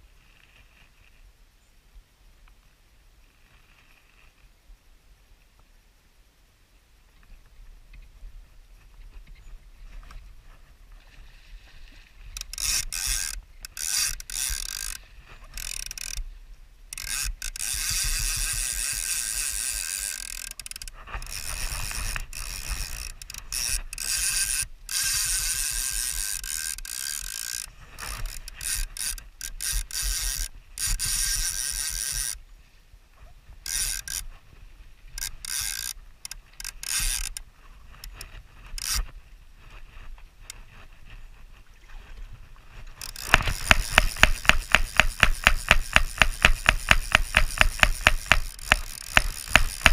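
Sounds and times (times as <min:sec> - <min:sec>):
fishing reel ratchet buzzing: 0:12.4 - 0:16.2, 0:16.9 - 0:32.4, 0:33.7 - 0:34.2, 0:35.2 - 0:37.4, 0:38.0 - 0:39.1, 0:43.0 - 0:49.9.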